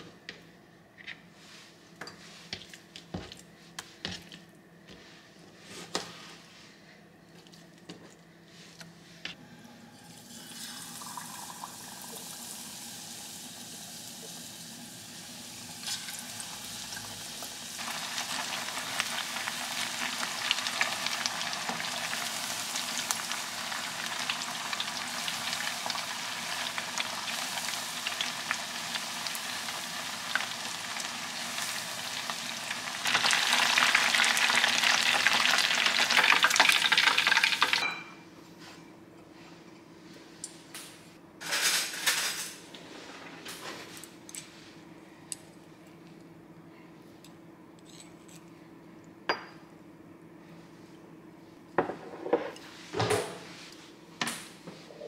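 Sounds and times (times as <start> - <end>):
chicken deep-frying in oil: 10.2 - 37.9.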